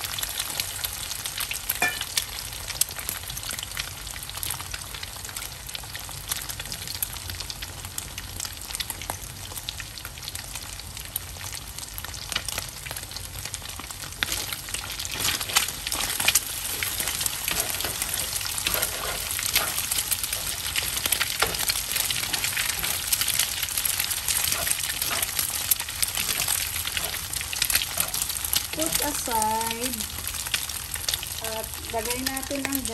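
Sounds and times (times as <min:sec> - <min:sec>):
eggs sizzling in oil: 0:00.0 - 0:32.9
spatula scraping pan: 0:14.2 - 0:29.2.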